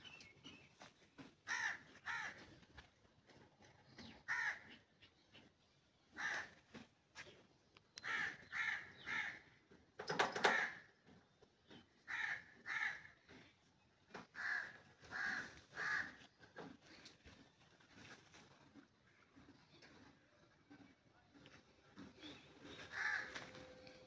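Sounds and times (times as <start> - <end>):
crows cawing: 1.5 - 2.4, 4.3 - 4.8, 6.2 - 6.6, 8.0 - 9.4, 10.4 - 10.9, 12.1 - 13.1, 14.3 - 16.2, 22.9 - 23.8.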